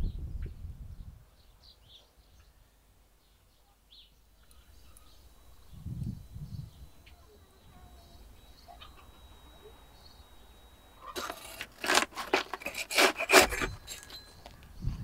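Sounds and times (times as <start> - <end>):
faint bird chirps: 0.0 - 11.2
metal rods scraping clay oven wall: 11.1 - 14.6.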